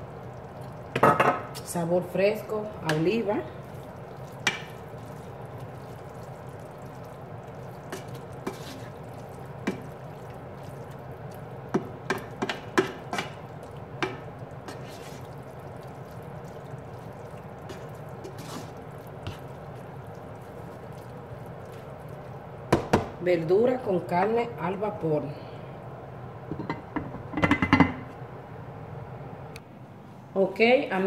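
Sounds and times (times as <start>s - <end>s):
spoon stirring wet stew: 0.0s - 23.0s
steady background hum: 0.0s - 31.0s
spoon tapping against pan: 11.7s - 13.4s, 14.0s - 14.2s.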